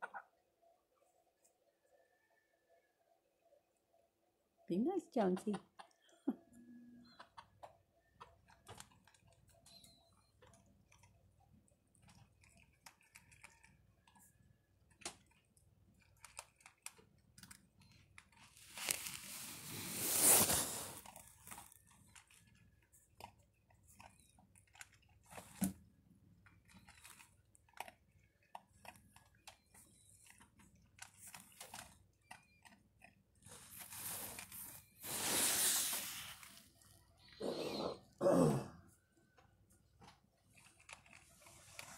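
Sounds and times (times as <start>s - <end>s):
puppy crunching kibble: 8.1s - 34.9s, 40.4s - 41.9s
rustling hiss: 18.7s - 21.0s, 33.6s - 36.6s.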